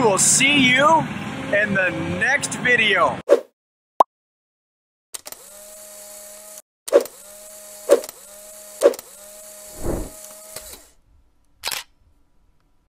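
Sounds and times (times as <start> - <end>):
motor whir: 5.2 - 10.9
low swell: 9.8 - 10.1
camera shutter clicks: 11.6 - 11.9.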